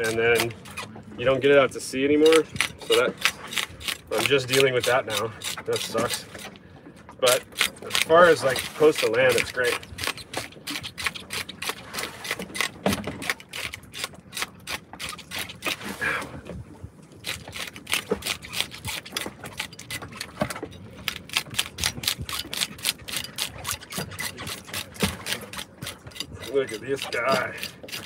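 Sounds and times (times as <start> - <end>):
fish scaler scraping scales: 0.0 - 16.5, 17.1 - 28.0.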